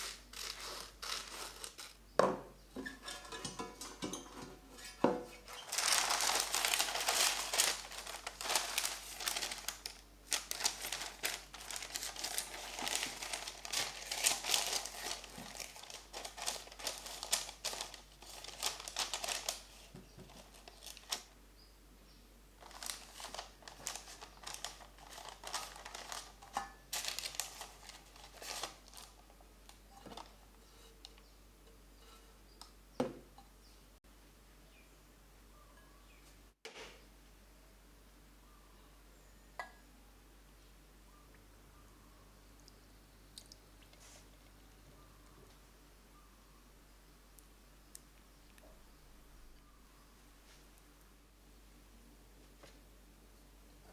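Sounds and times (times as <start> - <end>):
parchment paper crinkling: 0.0 - 2.0, 5.2 - 21.4, 22.6 - 31.2.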